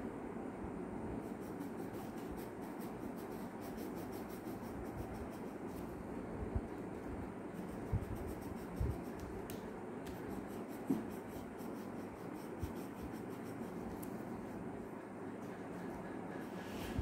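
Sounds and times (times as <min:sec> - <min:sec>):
pencil scratching on paper: 0:01.2 - 0:05.9, 0:07.5 - 0:09.5, 0:10.1 - 0:17.0.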